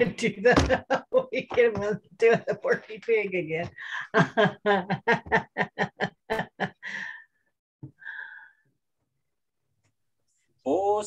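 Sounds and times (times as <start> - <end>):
woman laughing: 0.1 - 3.0, 3.8 - 7.2.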